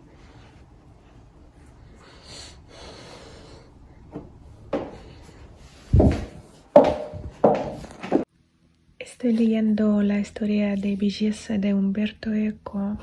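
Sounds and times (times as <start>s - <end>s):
high heels on hard floor: 5.9s - 8.3s.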